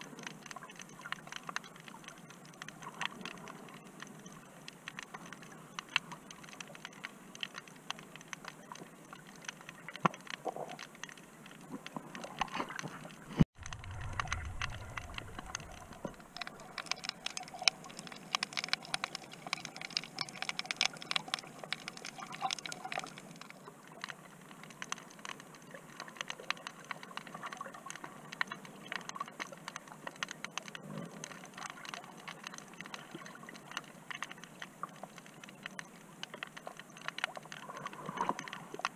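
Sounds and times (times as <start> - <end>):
underwater crackle of clicks: 0.0 - 38.9
brief low rumble: 13.6 - 16.3.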